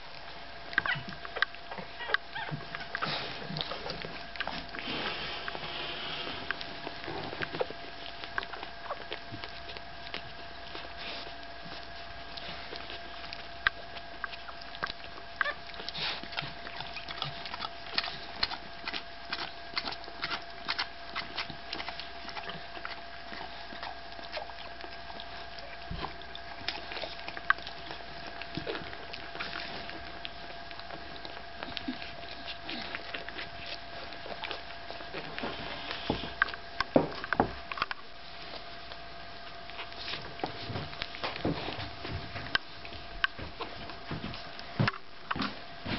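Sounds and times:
faint steady hum: 0.0 - 45.9
puppies suckling: 0.0 - 45.9
puppies squeaking: 0.8 - 4.7, 7.4 - 9.8, 12.3 - 30.6.

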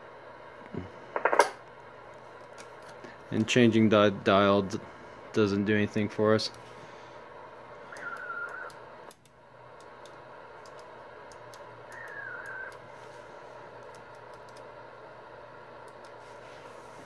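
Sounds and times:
radio receiver hiss: 0.0 - 2.0, 2.6 - 17.0
wavering radio whistle: 7.8 - 9.0, 11.8 - 13.1
faint crackling clicks: 7.9 - 12.8.

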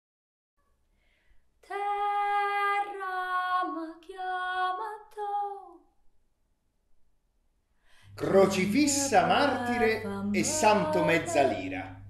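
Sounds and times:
high voice singing unaccompanied: 1.7 - 5.8, 8.2 - 12.0.

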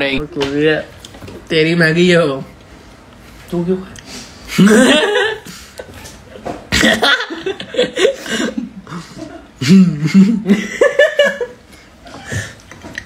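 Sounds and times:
people laughing: 4.5 - 12.5.

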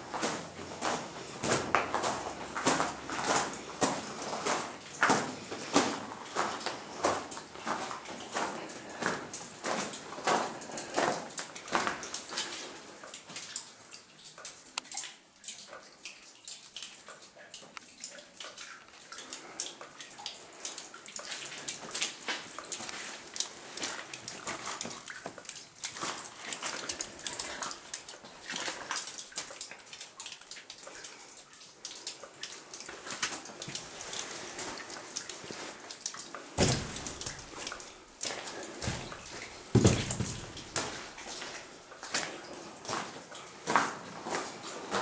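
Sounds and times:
footsteps on tunnel floor: 0.0 - 12.6, 36.6 - 45.0
water dripping and splashing: 0.0 - 45.0.

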